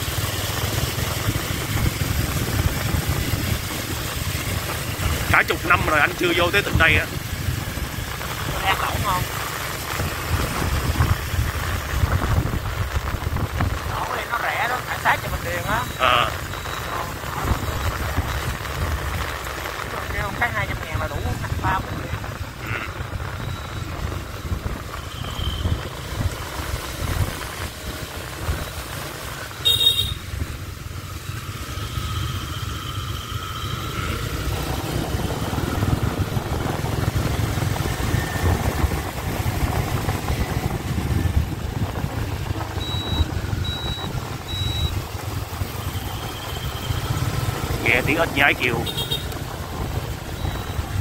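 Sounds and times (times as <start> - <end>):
motorbike engine and road noise: 0.0 - 51.0
short high beeps: 15.5 - 17.8, 42.8 - 45.0.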